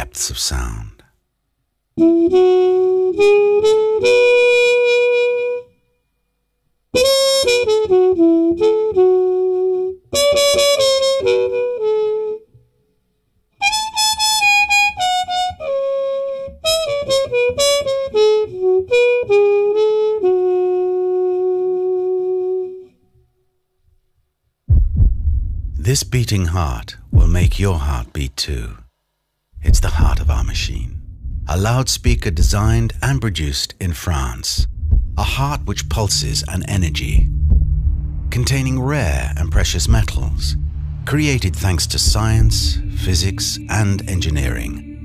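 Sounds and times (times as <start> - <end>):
solo wind instrument melody: 2.0 - 5.8, 7.0 - 12.5, 13.6 - 23.0, 38.3 - 45.0.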